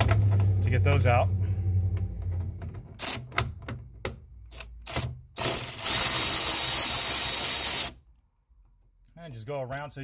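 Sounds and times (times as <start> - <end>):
cordless screwdriver running: 5.4 - 8.0.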